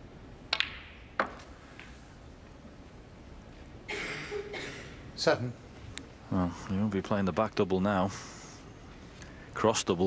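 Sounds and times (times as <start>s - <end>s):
snooker balls clicking: 0.5s - 1.9s.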